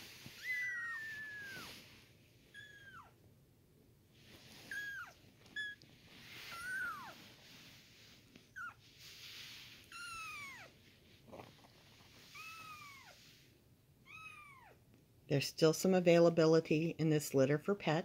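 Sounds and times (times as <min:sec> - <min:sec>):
soft rustling from handling: 0:00.0 - 0:03.1, 0:04.1 - 0:13.6.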